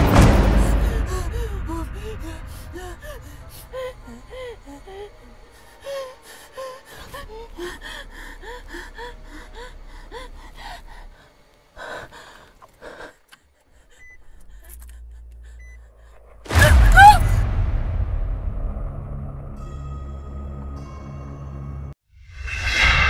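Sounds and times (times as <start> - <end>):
low rumble: 0.0 - 5.8, 14.3 - 20.6
heavy breaths: 0.4 - 17.1
woman gasping and whimpering: 0.4 - 17.4.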